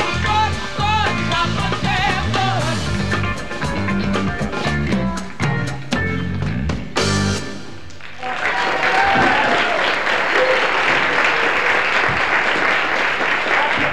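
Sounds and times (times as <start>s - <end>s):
rock band playing: 0.0s - 8.0s
audience applause: 8.0s - 13.9s.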